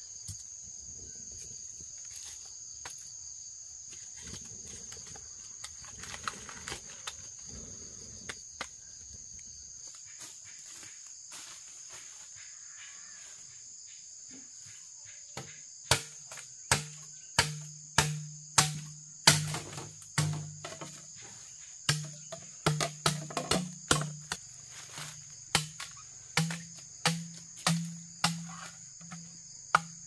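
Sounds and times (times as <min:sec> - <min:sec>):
insects droning: 0:00.0 - 0:30.0.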